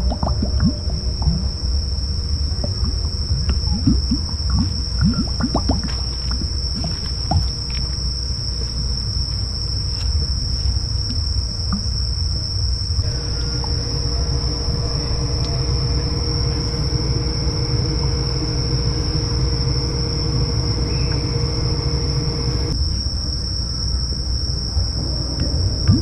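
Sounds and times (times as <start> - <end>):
low rumble: 0.0 - 5.8, 13.0 - 22.8
crickets chirping: 0.0 - 26.0
faint steady hum: 0.0 - 26.0.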